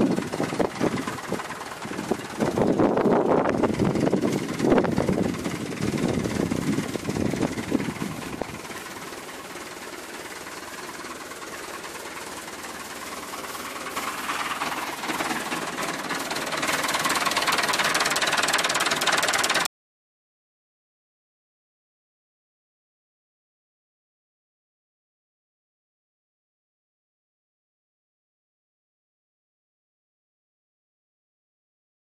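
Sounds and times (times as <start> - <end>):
rotary tiller churning soil: 0.0 - 19.7
tractor diesel engine under load: 0.0 - 19.7.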